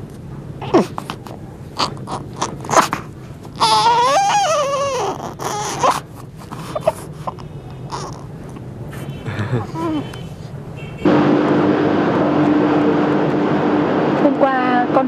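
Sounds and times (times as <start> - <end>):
baby squeaking and breathing: 0.7 - 8.4, 9.6 - 10.4
baby crying high-pitched: 3.6 - 6.0.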